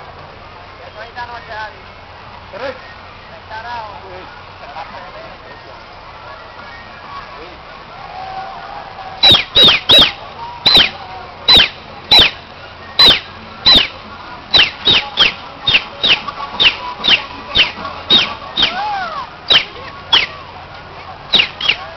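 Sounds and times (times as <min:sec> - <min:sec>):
whistle blowing sliding notes: 0:09.2 - 0:14.0, 0:14.6 - 0:18.9.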